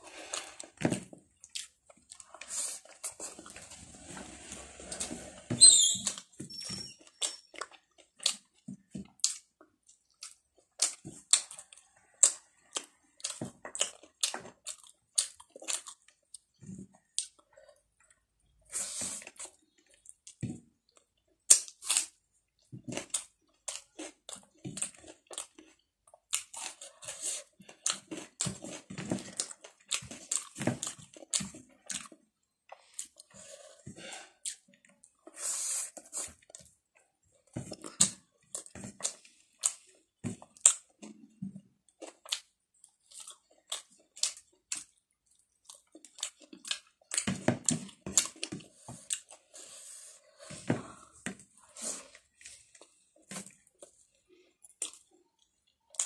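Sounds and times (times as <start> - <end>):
wet chewing: 0.1 - 3.7, 19.2 - 49.6.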